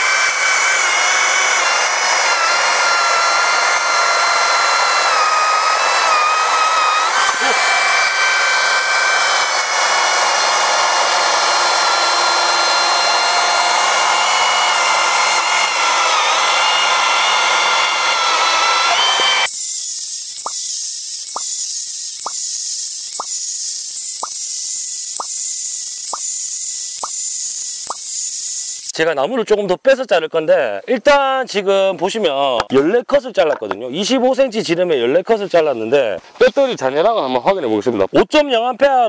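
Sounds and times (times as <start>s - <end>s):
electric chainsaw cutting log: 0.0s - 29.0s.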